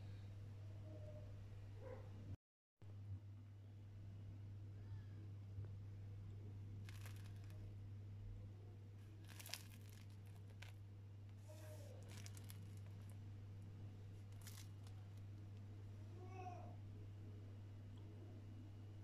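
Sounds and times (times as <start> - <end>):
low steady hum: 0.0 - 19.0
bread crust crackling: 6.7 - 7.8, 9.0 - 15.9.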